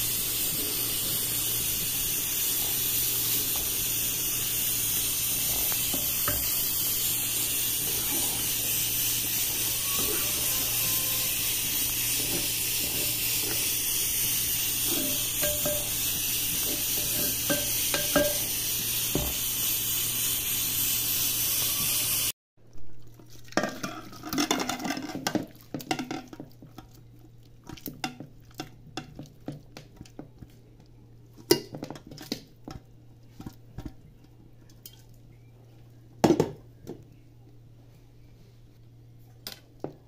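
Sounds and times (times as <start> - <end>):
food sizzling in a pot: 0.0 - 22.4
spoon clinking against pot: 15.0 - 15.9.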